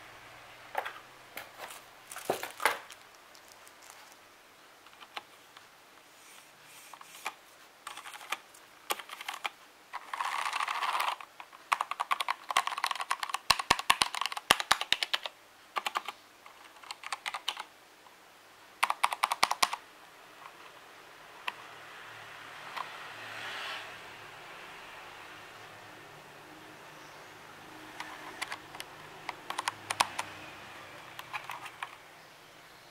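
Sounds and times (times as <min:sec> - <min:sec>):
mechanical keyboard typing: 0:04.9 - 0:05.3, 0:07.1 - 0:17.7, 0:18.8 - 0:19.8, 0:28.0 - 0:32.0.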